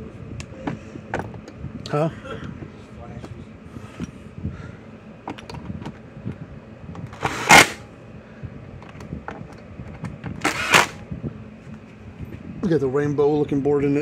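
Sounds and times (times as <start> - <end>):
loud scraping rushes: 7.2 - 7.8, 10.4 - 11.0.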